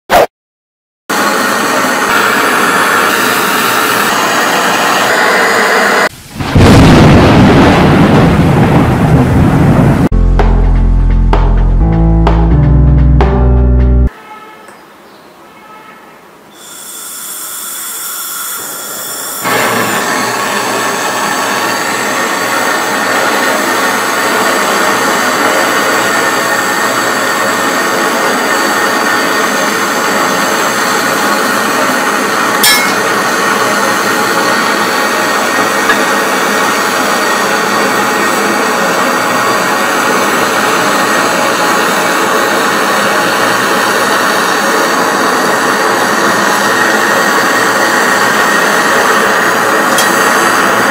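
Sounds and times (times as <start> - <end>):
gas hissing from torch: 1.2 - 6.3, 16.6 - 50.9
torch flame hissing: 1.2 - 6.5, 18.6 - 38.8, 39.6 - 50.9.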